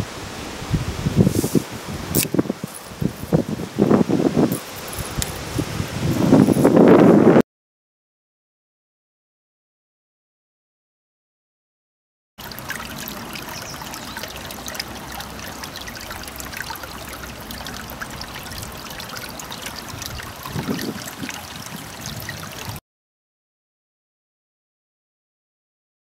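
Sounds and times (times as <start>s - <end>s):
stream babbling over stones: 0.1s - 6.9s, 12.4s - 22.8s
small water splashes: 12.4s - 22.8s.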